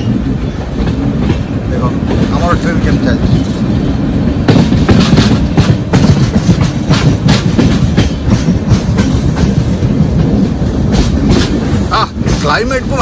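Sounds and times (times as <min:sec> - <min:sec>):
train coaches rumbling: 0:00.0 - 0:13.0
wheels clacking over rail joints: 0:00.0 - 0:13.0.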